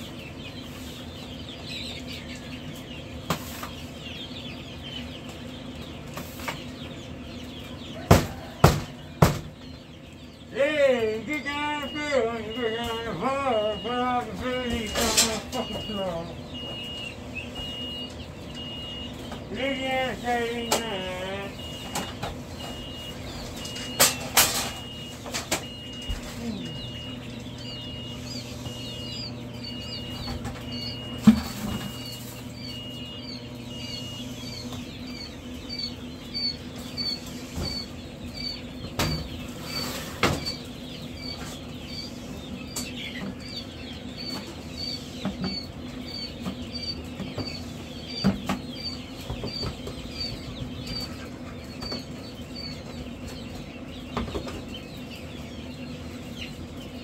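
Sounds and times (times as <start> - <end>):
baby chicks peeping: 0.0 - 57.0
steady machine hum: 0.0 - 57.0
cage trays knocking and rattling: 23.5 - 26.0.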